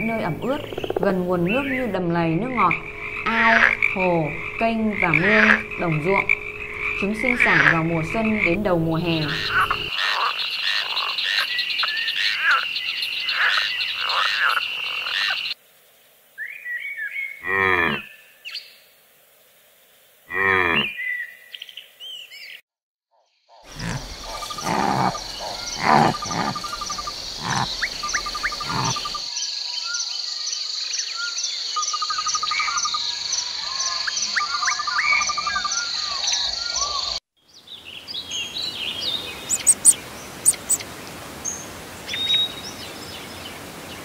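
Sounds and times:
frogs croaking: 0:00.0 - 0:15.6, 0:23.5 - 0:37.2, 0:38.0 - 0:42.8
bird chirps: 0:00.3 - 0:02.0, 0:23.8 - 0:40.8
high insect trill: 0:00.4 - 0:11.8, 0:23.7 - 0:37.2, 0:39.4 - 0:40.8
cow mooing: 0:02.6 - 0:09.9.

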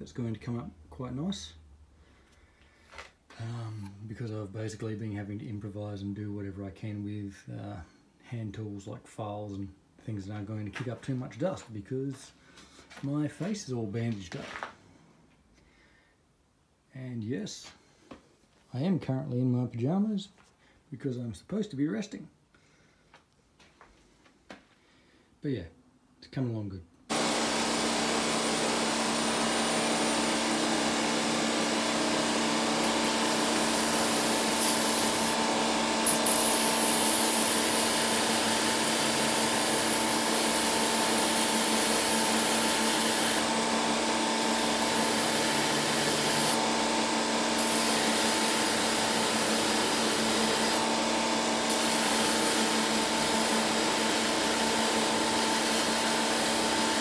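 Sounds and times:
belt grinder motor hum: 0:27.1 - 0:57.0.

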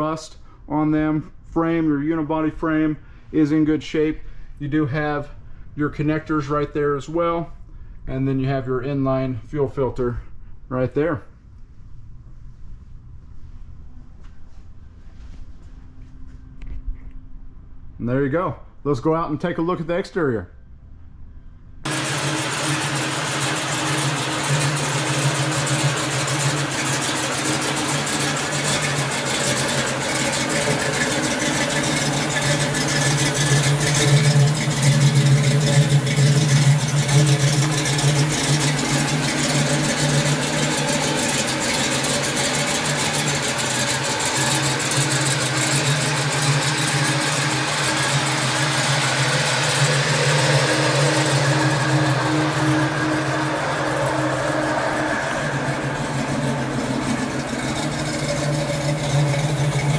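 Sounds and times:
car engine idling: 0:21.8 - 0:59.9.

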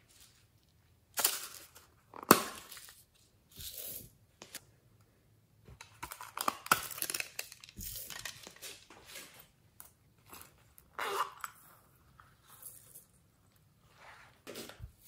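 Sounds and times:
packaging crinkle: 0:06.1 - 0:08.9.

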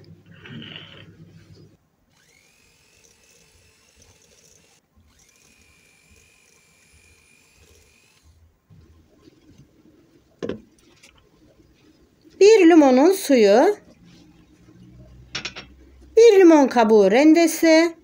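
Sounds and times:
electric hand mixer whining: 0:02.2 - 0:08.4.

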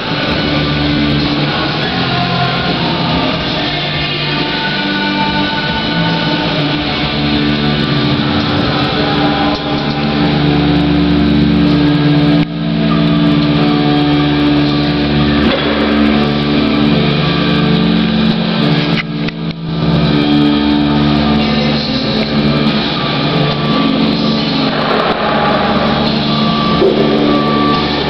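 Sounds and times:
motor humming: 0:26.0 - 0:28.0.

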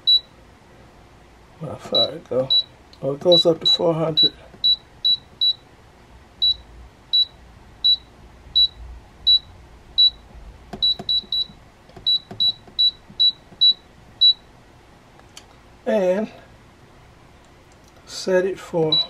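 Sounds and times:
short high beeps: 0:10.8 - 0:14.4.

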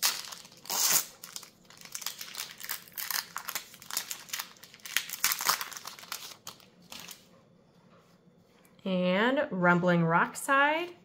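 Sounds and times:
foil wrapper crinkling: 0:00.0 - 0:07.2.

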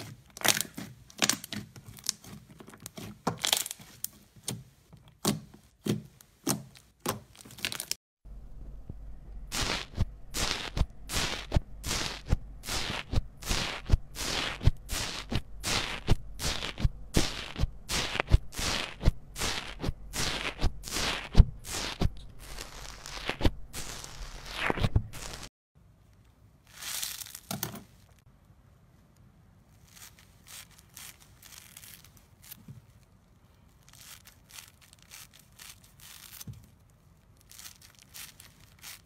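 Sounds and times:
slime squishing: 0:00.0 - 0:08.0, 0:26.7 - 0:28.0, 0:29.7 - 0:39.0.

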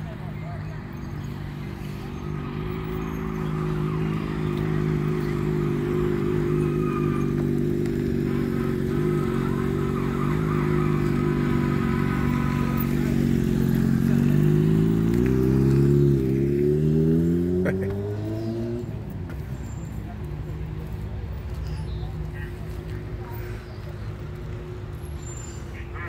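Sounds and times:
motorcycle engine revving: 0:00.0 - 0:20.2.

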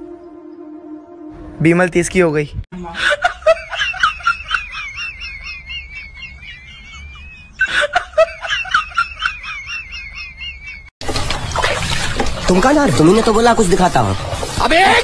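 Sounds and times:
high-pitched laughter: 0:03.0 - 0:10.9.

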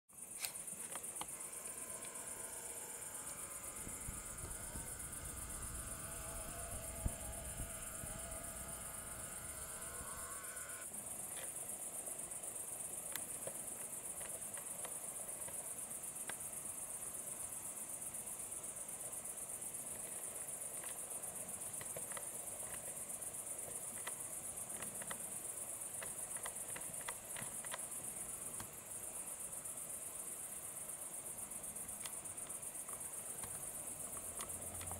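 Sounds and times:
crickets chirring: 0:00.1 - 0:34.9.

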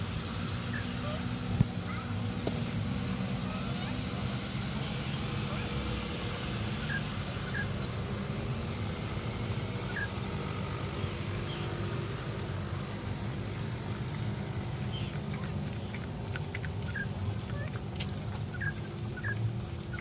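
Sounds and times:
van engines humming: 0:00.0 - 0:20.0.

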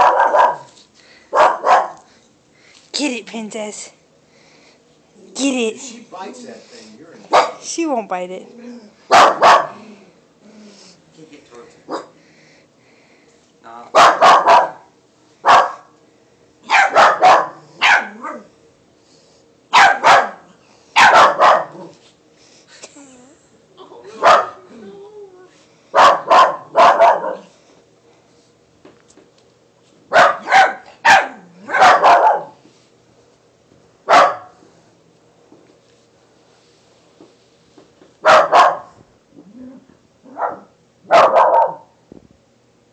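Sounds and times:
puppy barking: 0:00.0 - 0:00.7, 0:01.3 - 0:02.0, 0:07.3 - 0:07.6, 0:09.1 - 0:09.8, 0:14.0 - 0:15.9, 0:16.7 - 0:18.5, 0:19.7 - 0:21.9, 0:24.2 - 0:24.6, 0:26.0 - 0:27.5, 0:30.1 - 0:32.6, 0:34.1 - 0:34.6, 0:38.2 - 0:39.0, 0:40.3 - 0:41.9.

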